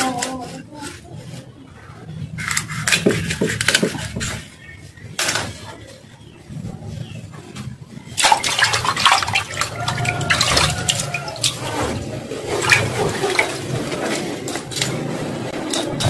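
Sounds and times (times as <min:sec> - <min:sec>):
water running and splashing: 0:08.1 - 0:15.0.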